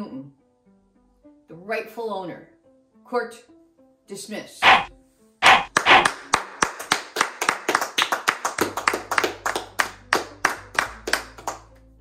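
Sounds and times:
people clapping hands: 0:05.4 - 0:12.0.

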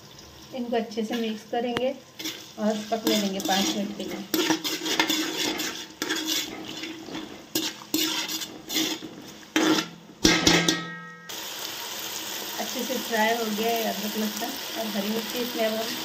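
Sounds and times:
food frying in oil: 0:00.0 - 0:10.5, 0:11.3 - 0:16.0
metal spoon scraping pot: 0:02.2 - 0:11.0
spoon clanking on pot: 0:09.6 - 0:11.3.

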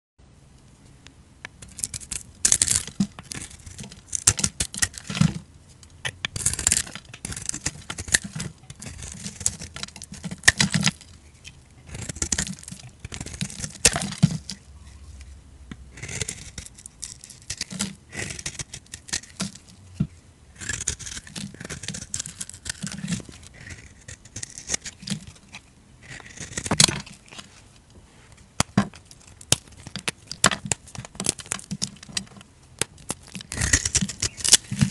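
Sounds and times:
knife scraping soap: 0:01.6 - 0:05.4, 0:06.2 - 0:15.3, 0:15.9 - 0:27.5, 0:28.3 - 0:34.9.

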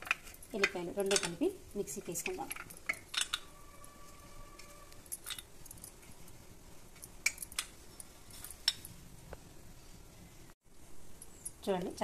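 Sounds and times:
garlic cloves clinking on steel plate: 0:00.0 - 0:04.0.

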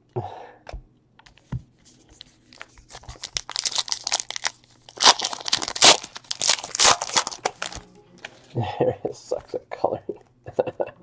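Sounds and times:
foil wrapper crinkling and tearing: 0:02.5 - 0:07.8.

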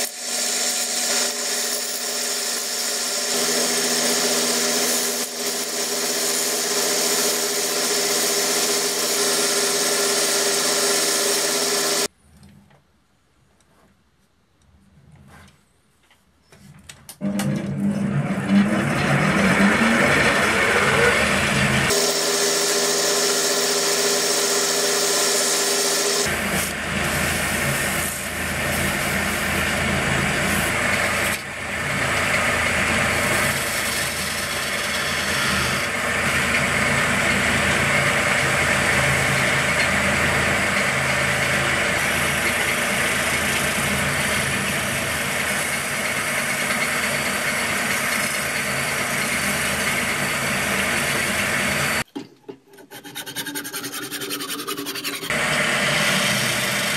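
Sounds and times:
lathe motor hum: 0:00.2 - 0:12.1, 0:17.2 - 0:52.0
chisel scraping spinning wood: 0:17.8 - 0:50.3, 0:52.6 - 0:56.9.

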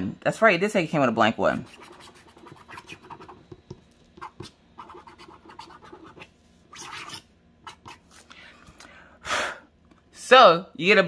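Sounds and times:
stylus scratching coated sheet: 0:01.6 - 0:03.5, 0:04.2 - 0:08.2.

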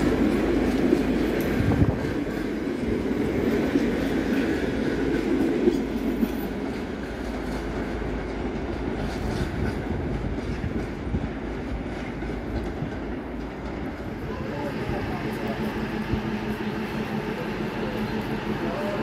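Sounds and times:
train rumbling over tracks: 0:00.0 - 0:19.0
train wheels clicking over rail joints: 0:00.0 - 0:19.0.

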